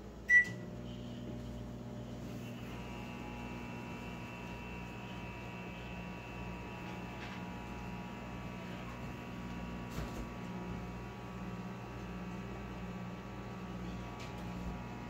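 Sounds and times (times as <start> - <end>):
microwave oven humming: 0.0 - 15.0.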